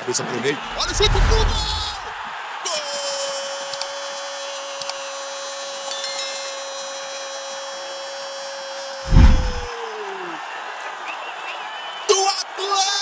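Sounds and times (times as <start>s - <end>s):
stadium crowd celebrating: 0.6s - 5.9s, 9.1s - 12.8s.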